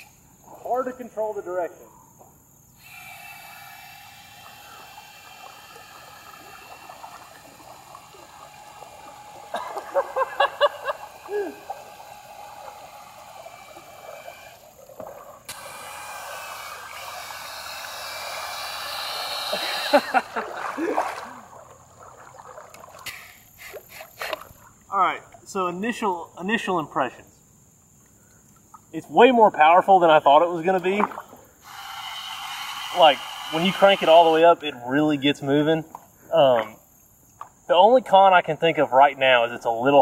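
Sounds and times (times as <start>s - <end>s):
drill motor whine: 2.8s - 7.4s, 8.0s - 14.6s, 15.5s - 20.2s, 31.6s - 34.6s
churning water: 2.8s - 27.1s, 28.0s - 34.6s.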